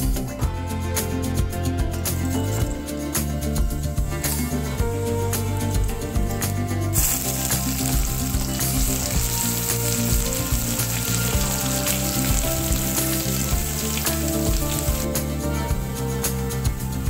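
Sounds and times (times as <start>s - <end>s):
paste sizzling in hot oil: 6.9s - 15.2s.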